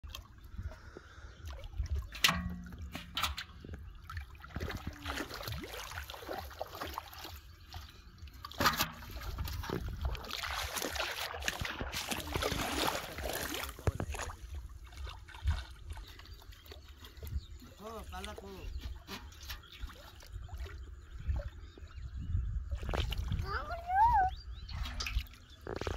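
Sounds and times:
stream water splashing: 1.4 - 21.8.

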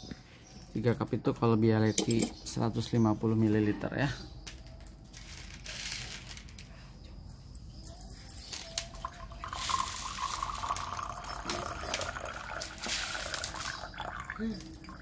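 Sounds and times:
water pouring into metal pot: 9.0 - 15.0.

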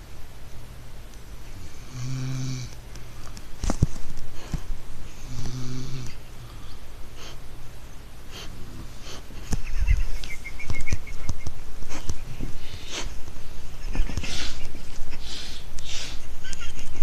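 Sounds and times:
man snoring: 1.6 - 2.7, 5.2 - 6.2
breathing: 6.4 - 7.4, 15.2 - 16.3.

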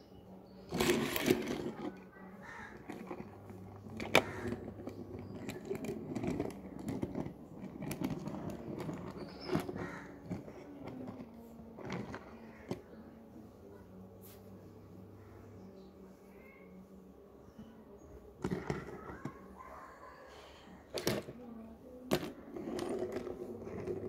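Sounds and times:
plastic toys clicking and knocking: 0.7 - 12.9, 18.3 - 19.6, 20.4 - 24.0.

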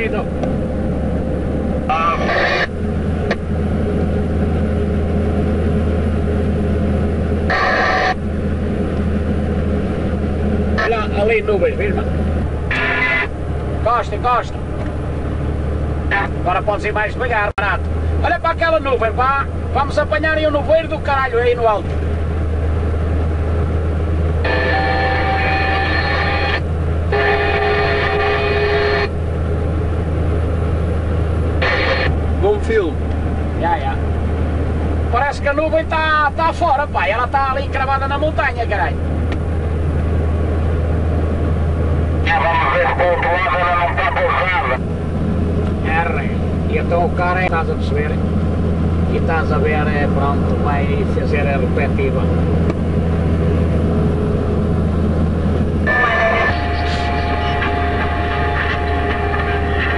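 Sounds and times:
lorry engine drone: 0.0 - 59.9
road noise: 0.0 - 59.9
truck horn blasts: 7.4 - 8.2, 12.7 - 13.4, 24.3 - 29.2, 31.6 - 32.2, 55.8 - 59.9.

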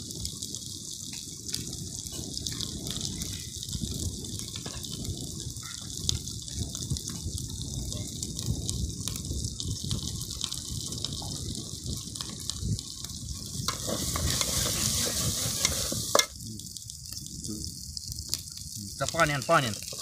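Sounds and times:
food sizzling in a pot: 0.0 - 20.0
spatula scraping a pot: 13.7 - 16.3.

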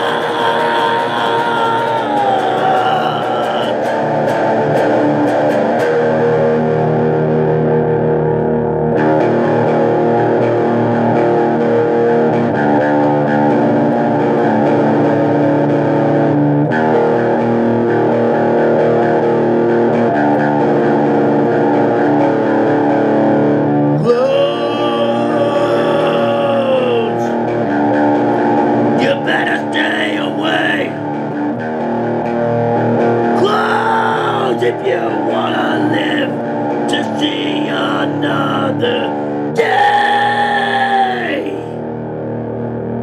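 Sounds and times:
person singing: 0.0 - 4.2, 24.0 - 27.4, 29.0 - 31.0, 33.3 - 41.8
heavy metal band playing: 0.0 - 42.0.

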